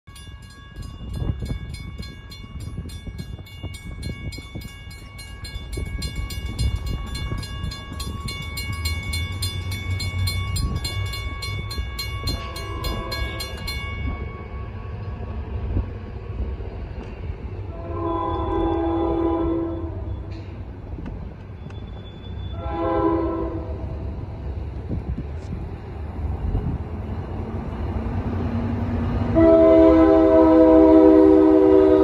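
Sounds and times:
crossing warning bell ringing: 0:00.1 - 0:15.8
low train rumble: 0:00.1 - 0:32.0
train horn: 0:12.2 - 0:13.7, 0:17.6 - 0:20.3, 0:22.5 - 0:24.0, 0:29.3 - 0:32.0.

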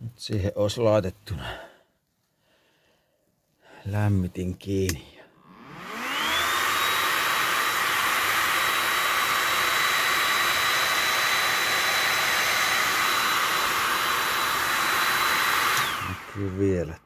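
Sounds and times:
heater fan blowing air: 0:05.4 - 0:17.0
high fan motor whine: 0:05.5 - 0:16.7.

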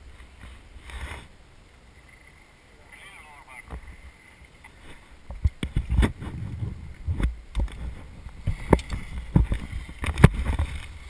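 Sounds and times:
wind buffeting microphone: 0:05.2 - 0:11.0.

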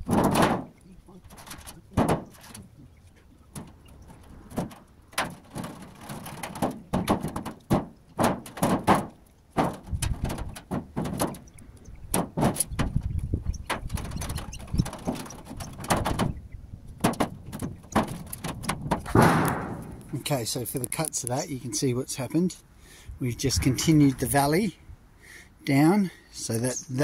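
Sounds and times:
sheet metal knocking and scraping: 0:00.0 - 0:02.6, 0:03.5 - 0:16.4, 0:17.0 - 0:20.2
low rumble: 0:23.2 - 0:24.5.

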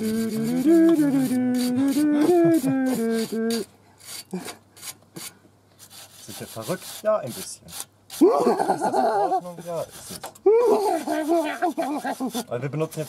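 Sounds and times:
man singing wordless tune: 0:00.0 - 0:03.6
wire brush scrubbing metal: 0:00.0 - 0:13.0.

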